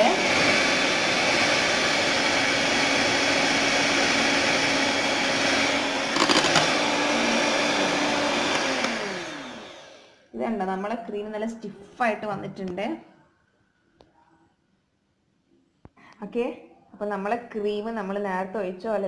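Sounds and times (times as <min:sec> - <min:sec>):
electric hand mixer whining: 0:00.0 - 0:10.2
mixer rattle: 0:00.2 - 0:10.0.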